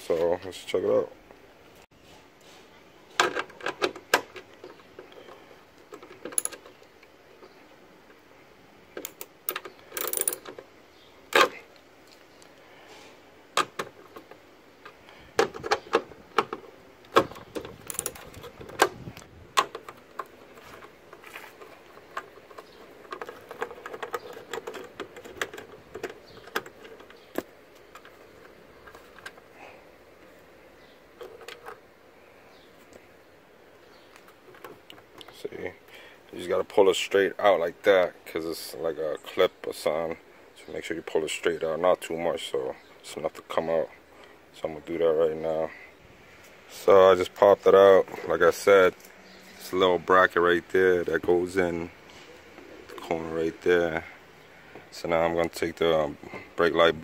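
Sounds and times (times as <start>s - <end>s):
screwdriver clicks and rattles: 17.2s - 18.9s.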